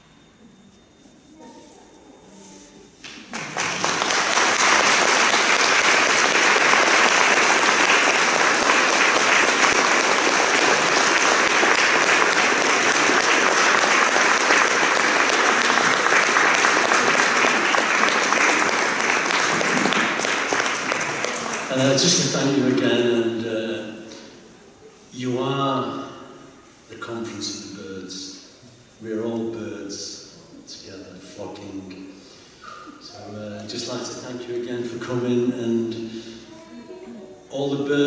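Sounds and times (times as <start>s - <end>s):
audience applauding: 3.1s - 22.8s.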